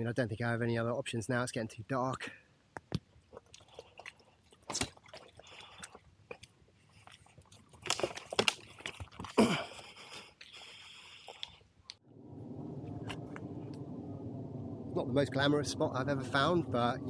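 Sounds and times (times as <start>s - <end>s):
twigs and leaves crunching: 6.9s - 9.4s.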